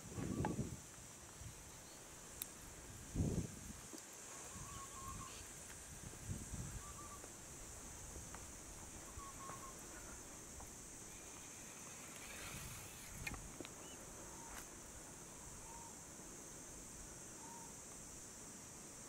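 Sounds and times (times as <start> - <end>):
high insect drone: 0.0 - 19.0.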